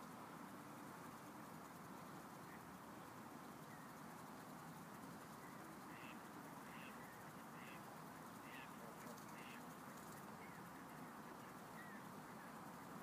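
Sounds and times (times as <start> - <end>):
goose calls: 8.4 - 9.6.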